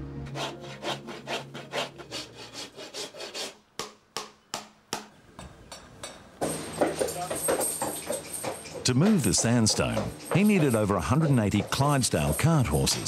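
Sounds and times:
rasp filing hoof: 0:00.3 - 0:03.6, 0:06.8 - 0:13.0.

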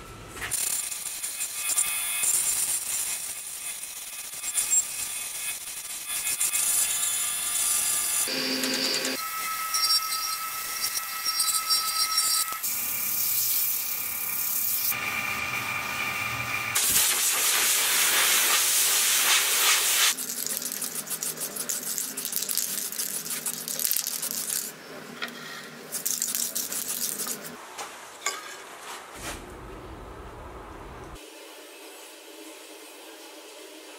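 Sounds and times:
lathe motor whine: 0:08.3 - 0:12.6, 0:15.0 - 0:16.8
sanding hiss on spinning wood: 0:16.8 - 0:20.2.

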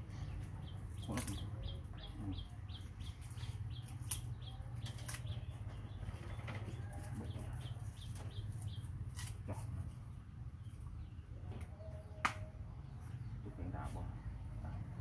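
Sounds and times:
small bird chirping: 0:00.0 - 0:09.8.

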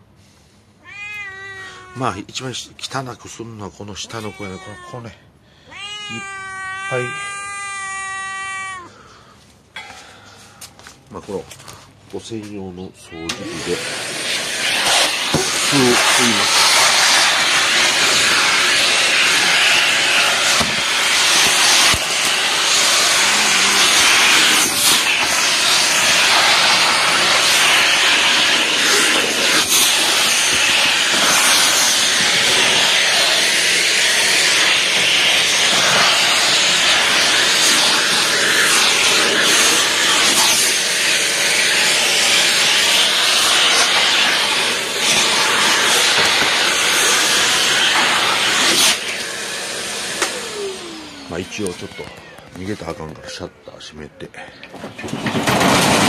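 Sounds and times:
vacuum cleaner running: 0:13.2 - 0:53.2, 0:55.2 - 0:56.0.

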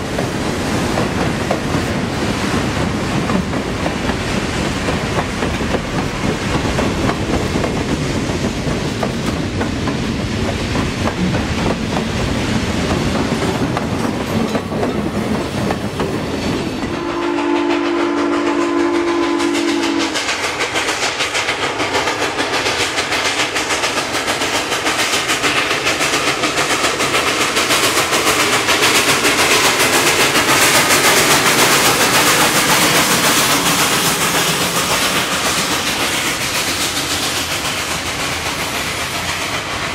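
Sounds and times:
wheels clacking on rail joints: 0:00.0 - 0:17.0, 0:19.4 - 0:39.9
steam whistle blowing: 0:16.9 - 0:20.2.

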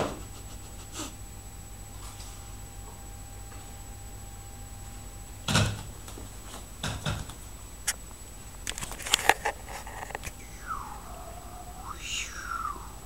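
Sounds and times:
sharp clicks and scrapes: 0:08.6 - 0:10.4.

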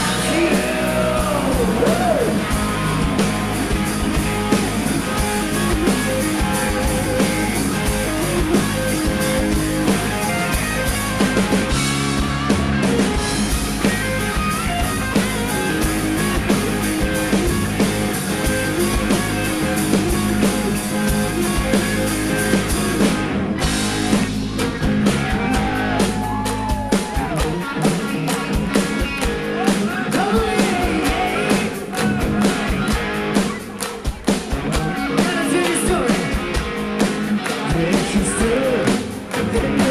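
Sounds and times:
person singing: 0:00.0 - 0:03.1, 0:29.8 - 0:32.4, 0:37.6 - 0:39.9
rock band playing live: 0:00.0 - 0:39.9.

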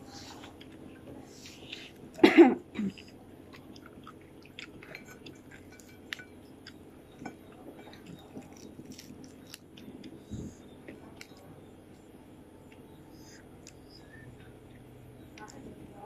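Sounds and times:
chewing crispy fried fish: 0:00.2 - 0:12.1.

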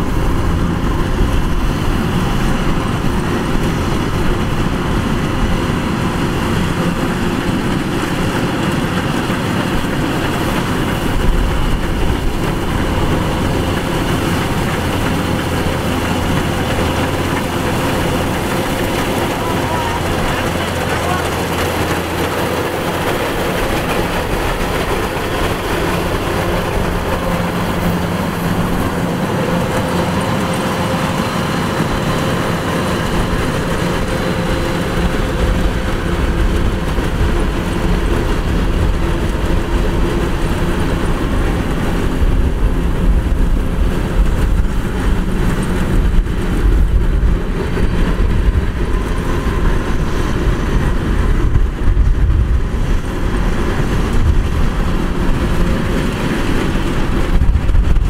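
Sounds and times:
combine harvester engine running: 0:00.0 - 0:58.0.

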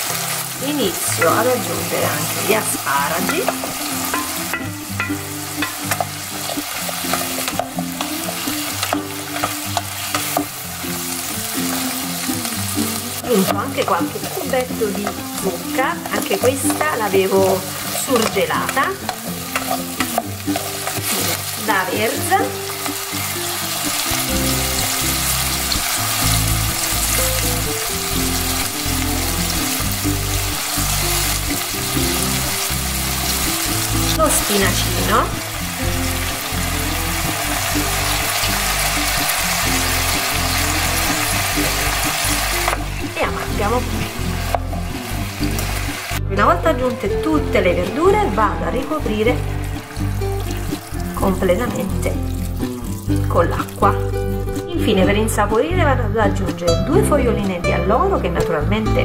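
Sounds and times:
vegetables sizzling in oil: 0:00.0 - 0:55.2
background music: 0:00.0 - 0:59.0.

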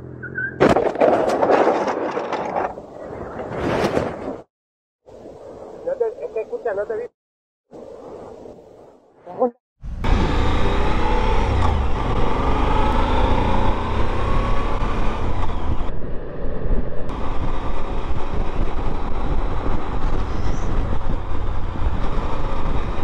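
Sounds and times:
wind rushing over microphone: 0:13.5 - 0:23.0.

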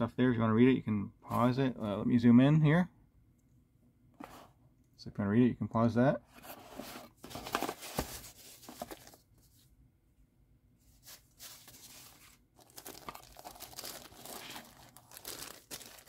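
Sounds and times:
plastic wrap crinkling: 0:11.0 - 0:16.0.

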